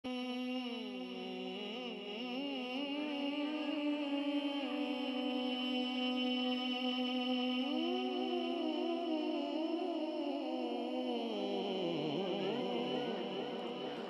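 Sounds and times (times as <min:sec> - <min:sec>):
person singing wavering melody: 0:07.7 - 0:14.0
steady held drone: 0:11.6 - 0:14.0.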